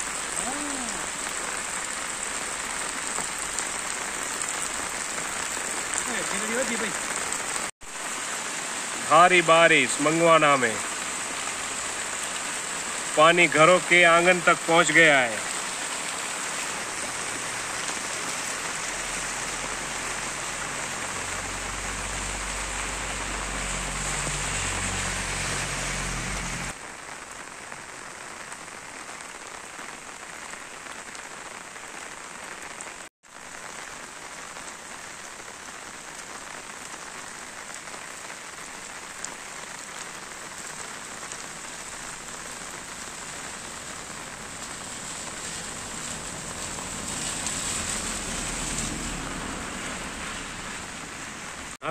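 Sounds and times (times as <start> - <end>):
rain on wet pavement: 0.0 - 51.9.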